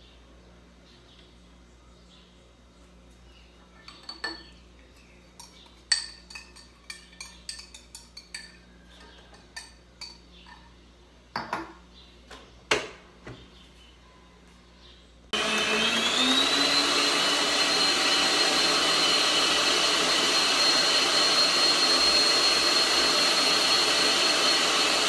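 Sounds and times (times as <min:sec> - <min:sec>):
glass and utensils clinking on bowl: 0:03.8 - 0:10.7.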